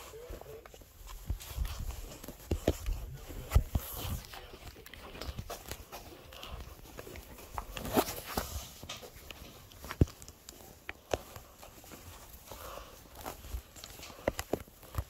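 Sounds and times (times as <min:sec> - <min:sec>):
fingers rubbing and tapping phone: 0:00.0 - 0:12.0.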